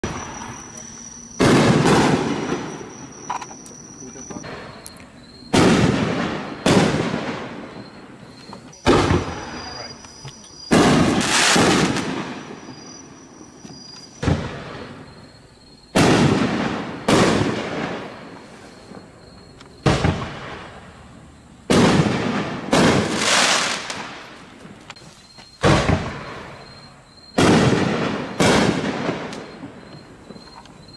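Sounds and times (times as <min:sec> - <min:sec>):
firework shell bangs: 0:01.4 - 0:03.0.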